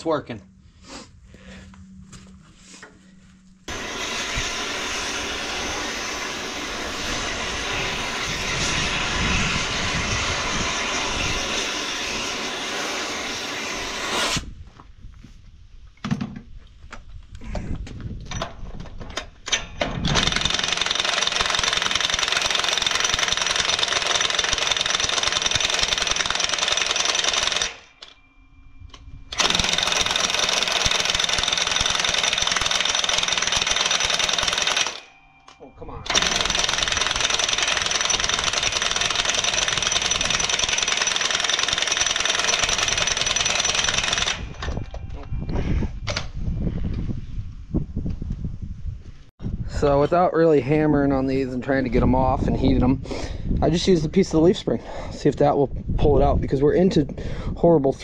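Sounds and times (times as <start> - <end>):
impact wrench hammering: 19.8 - 28.2, 29.3 - 35.1, 36.0 - 44.6.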